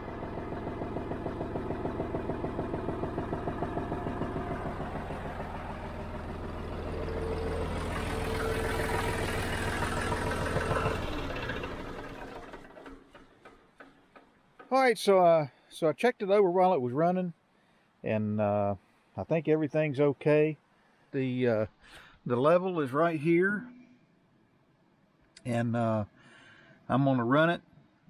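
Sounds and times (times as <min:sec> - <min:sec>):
tractor diesel engine idling: 0:00.0 - 0:15.6, 0:21.2 - 0:23.8.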